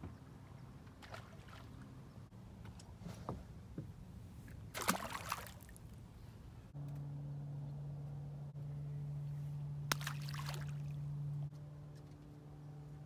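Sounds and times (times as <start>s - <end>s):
fish splashing into water: 4.7s - 5.8s, 9.9s - 11.0s.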